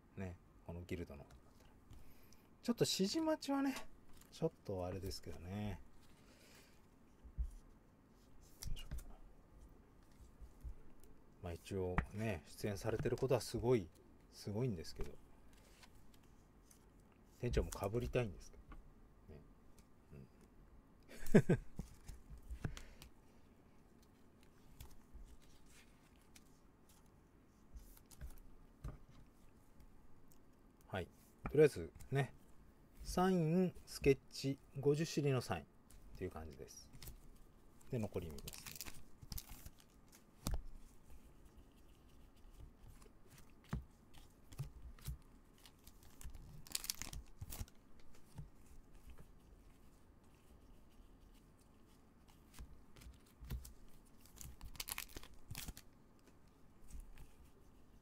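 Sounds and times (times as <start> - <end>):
faint rustles and clicks: 3.6 - 20.6, 21.5 - 58.0
foil wrapper crinkling and tearing: 37.9 - 40.0, 45.6 - 47.8, 54.1 - 55.9.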